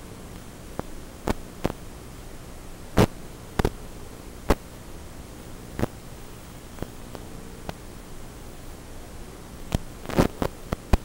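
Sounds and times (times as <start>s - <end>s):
low electrical hum: 0.0s - 11.0s
static hiss: 0.0s - 11.0s
sharp pops: 3.0s - 3.8s.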